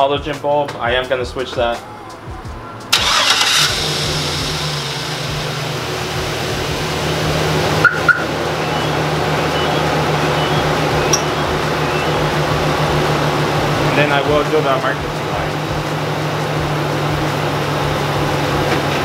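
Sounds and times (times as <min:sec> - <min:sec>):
pickup truck engine idling: 0:02.3 - 0:19.0
short high beeps: 0:09.6 - 0:12.2.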